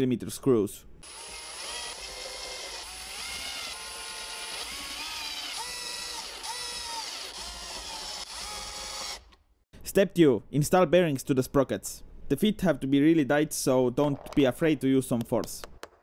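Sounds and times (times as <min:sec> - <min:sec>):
cordless drill motor whine: 0:01.0 - 0:09.3.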